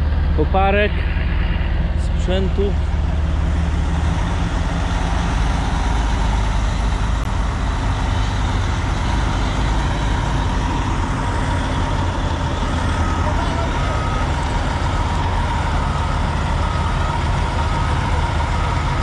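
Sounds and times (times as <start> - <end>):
diesel excavator engine running: 0.0 - 19.0.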